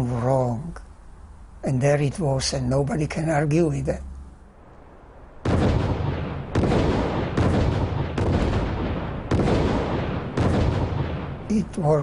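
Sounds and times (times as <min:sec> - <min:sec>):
explosive bangs with rumble: 0:05.4 - 0:11.5.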